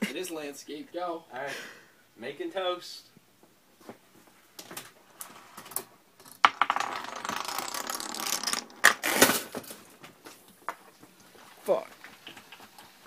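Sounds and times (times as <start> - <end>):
dominoes clattering: 5.3 - 9.8.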